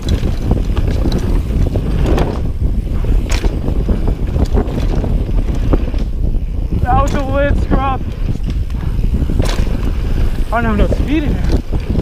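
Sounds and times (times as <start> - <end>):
bike clicks and rattles: 0.0 - 12.0
bike tyres rumbling on dirt: 0.0 - 12.0
wind buffeting microphone: 0.0 - 12.0
bike landing knock: 3.2 - 3.8, 9.3 - 9.9.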